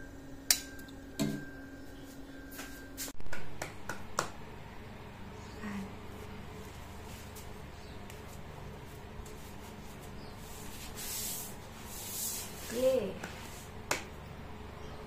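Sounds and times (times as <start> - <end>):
low room hum: 0.0 - 15.0
rustling and shuffling: 6.0 - 13.9.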